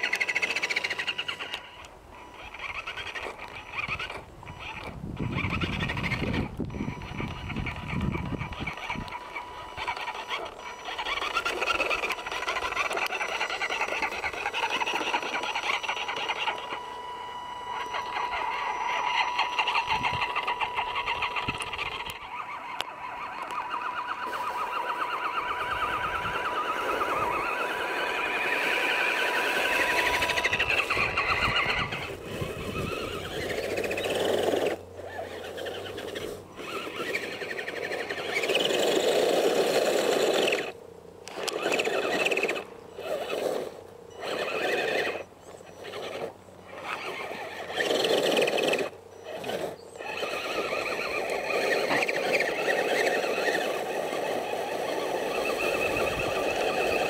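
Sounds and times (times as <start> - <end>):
electric motor whining: 0.0 - 57.0
tyres churning through snow: 0.0 - 57.0
thin high tone: 6.7 - 34.8.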